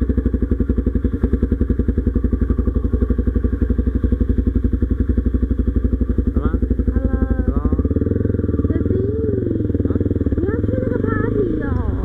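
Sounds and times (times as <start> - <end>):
scooter engine running: 0.0 - 12.0.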